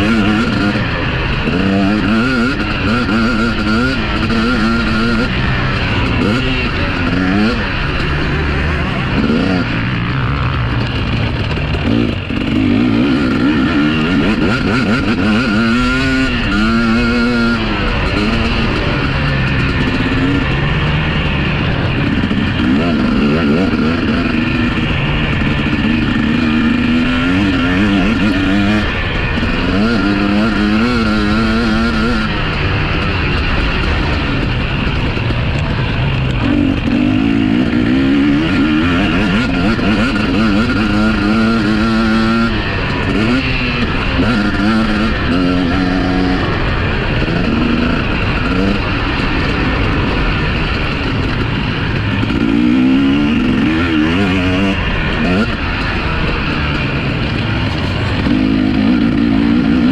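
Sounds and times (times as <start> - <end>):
motocross bike engines revving: 0.0 - 59.9.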